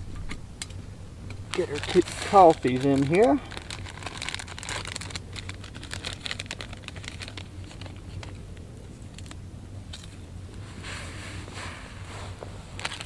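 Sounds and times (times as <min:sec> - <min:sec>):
campfire crackling and popping: 0:00.6 - 0:08.6.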